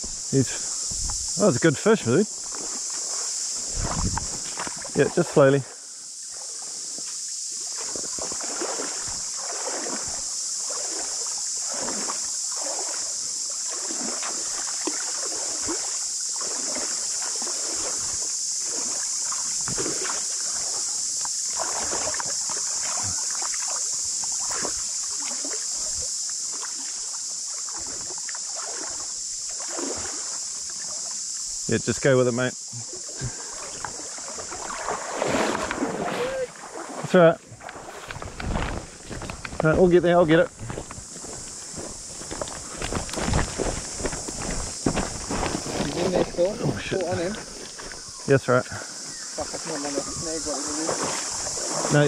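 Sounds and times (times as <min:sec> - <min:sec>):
cicadas chorus: 0:00.0 - 0:52.0
water sloshing from wading: 0:02.1 - 0:05.4, 0:06.2 - 0:31.3, 0:32.8 - 0:52.0.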